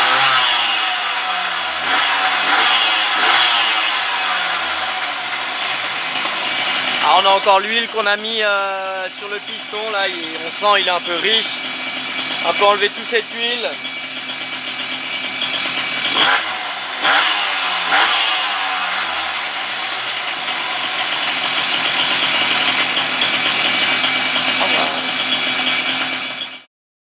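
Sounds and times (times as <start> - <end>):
two-stroke engine revving: 0.0 - 26.7.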